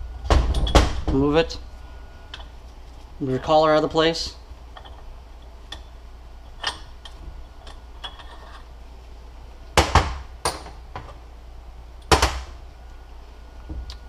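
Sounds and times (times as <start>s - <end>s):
metal parts and tools clinking: 6.5s - 8.7s.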